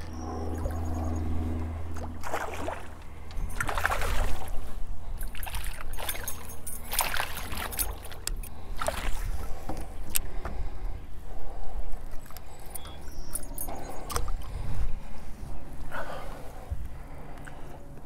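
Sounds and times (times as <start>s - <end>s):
low steady hum: 0.0s - 18.0s
fish splashing in water: 1.9s - 9.5s.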